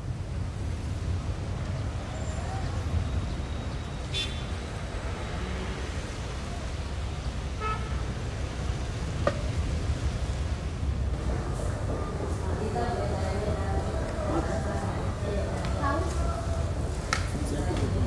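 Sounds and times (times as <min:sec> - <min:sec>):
traffic rumble: 0:00.0 - 0:18.0.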